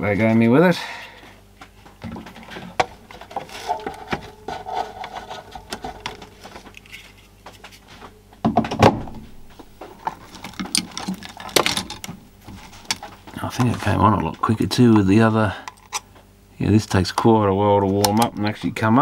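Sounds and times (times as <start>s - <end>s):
parts clattering on a bench: 1.9s - 14.0s
plastic casing clicks and rattles: 10.0s - 12.2s.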